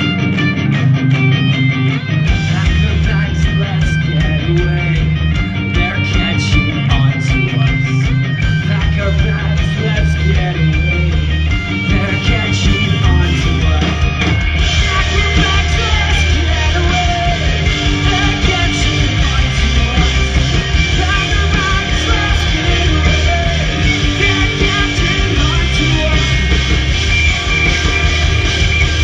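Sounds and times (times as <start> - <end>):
bass guitar: 0.0 - 29.0
drums: 0.0 - 29.0
electric guitars: 0.0 - 29.0
man singing: 2.3 - 28.8.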